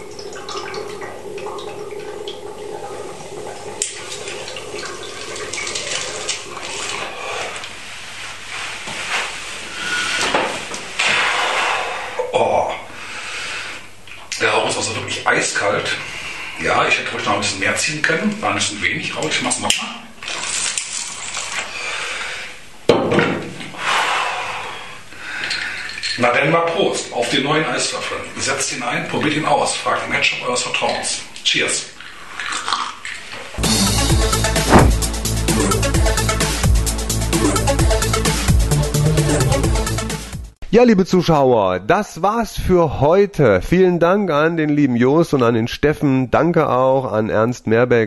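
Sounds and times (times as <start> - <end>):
water bubbling in a bong: 0.0 - 7.2
sharp knock: 34.6 - 35.1.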